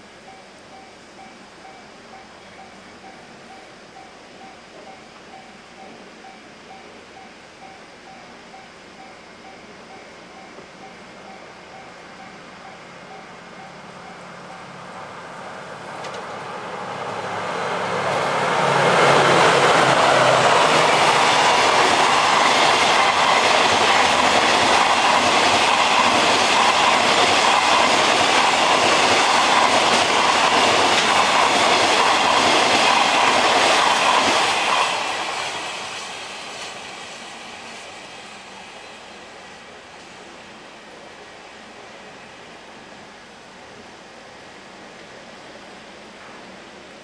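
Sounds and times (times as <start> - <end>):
locomotive engine hum: 9.9 - 34.7
train wheels clattering on rail joints: 19.2 - 35.2.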